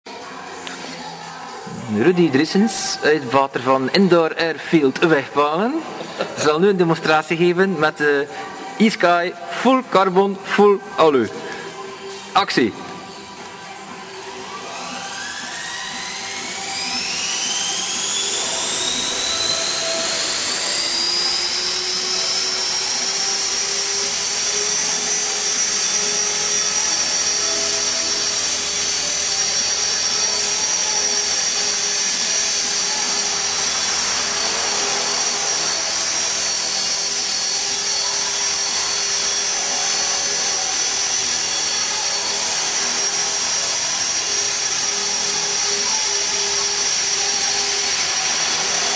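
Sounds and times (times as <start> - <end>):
rc helicopter rotor whine: 0.1 - 48.9.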